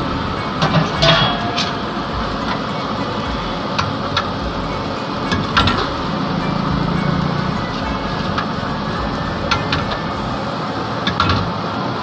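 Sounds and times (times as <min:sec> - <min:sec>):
street food stall din: 0:00.0 - 0:12.0
steel ladle clinking on pots: 0:00.5 - 0:06.0.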